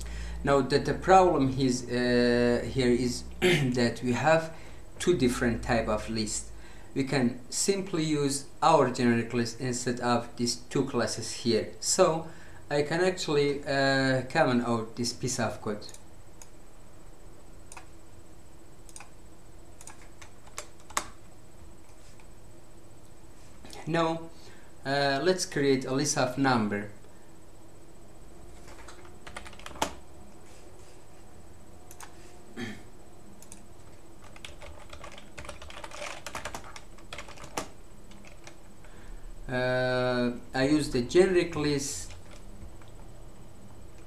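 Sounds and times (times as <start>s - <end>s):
faint background hum: 0.0s - 44.0s
keyboard keystroke clicks: 18.9s - 19.1s
keyboard keystrokes: 28.6s - 30.0s, 34.2s - 38.6s.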